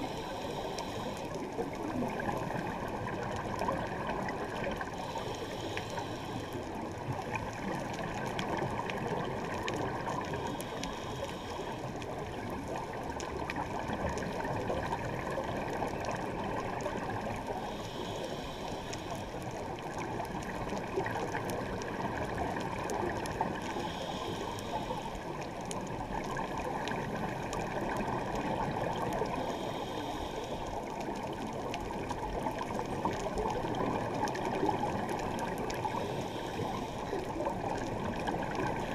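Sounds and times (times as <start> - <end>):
scuba regulator breathing hiss: 0.0 - 1.3, 5.0 - 6.8, 10.3 - 11.9, 17.5 - 19.4, 23.6 - 25.3, 29.2 - 30.8, 35.8 - 37.2
muffled underwater rush: 0.0 - 38.9.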